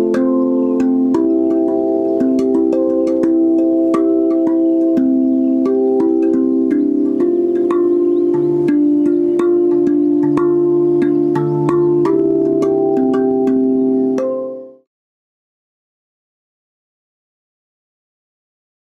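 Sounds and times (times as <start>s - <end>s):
steel tongue drum melody: 0.0s - 14.9s.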